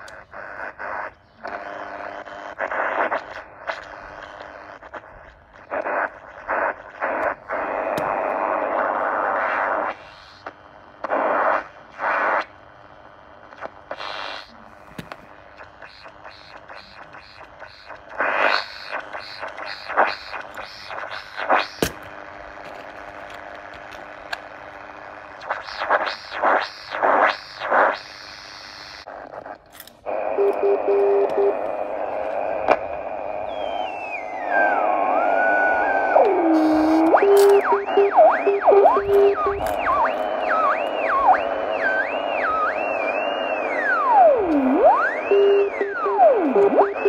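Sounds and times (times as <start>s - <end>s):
radio static and crackle: 0.0s - 47.0s
steady buzzing hiss: 0.0s - 47.0s
rapid whistling bursts: 33.4s - 47.0s.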